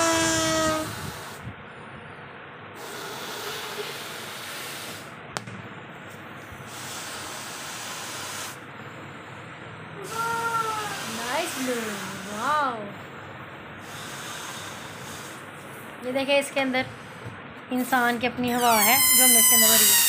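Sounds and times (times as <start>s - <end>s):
breath blown into balloon: 0.0s - 1.5s, 2.8s - 5.2s, 6.6s - 8.7s, 10.7s - 12.6s, 13.8s - 15.5s.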